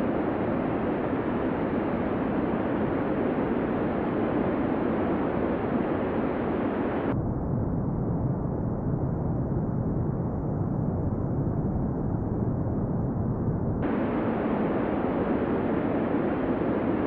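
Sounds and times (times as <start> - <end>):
deep dull rumble: 6.6 - 17.0.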